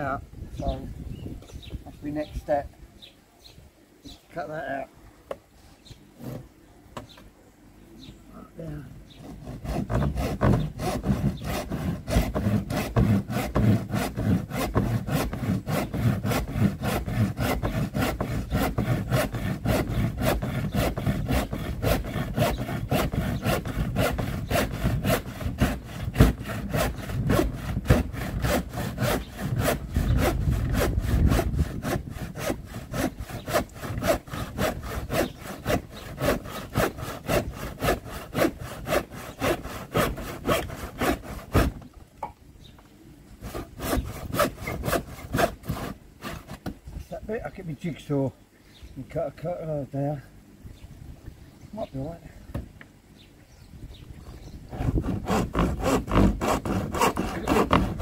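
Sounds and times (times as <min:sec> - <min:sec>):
hand saw cutting wood: 0:06.2 - 0:06.5, 0:09.1 - 0:41.9, 0:43.4 - 0:46.7, 0:54.7 - 0:58.0.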